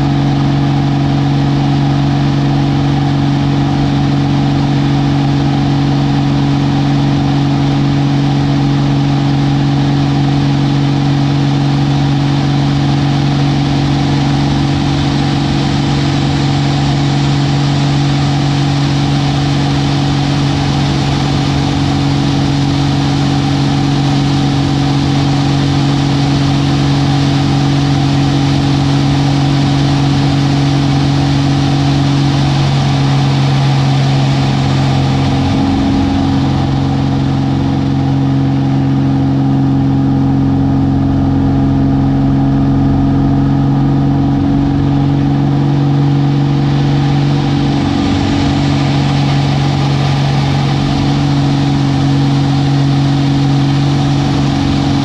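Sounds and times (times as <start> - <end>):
propeller plane engine droning: 0.0 - 55.0
airflow rushing over canopy: 10.6 - 40.7, 42.6 - 55.0.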